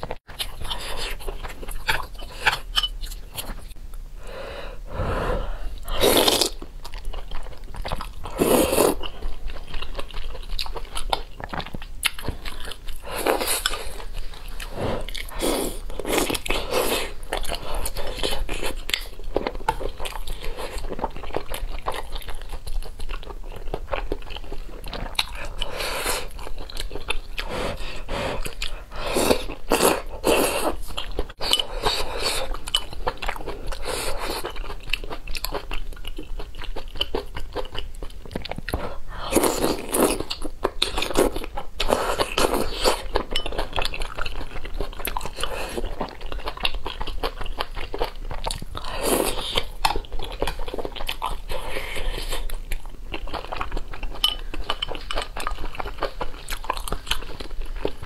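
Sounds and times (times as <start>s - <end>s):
person slurping noodles: 4.9s - 6.6s, 8.3s - 9.0s.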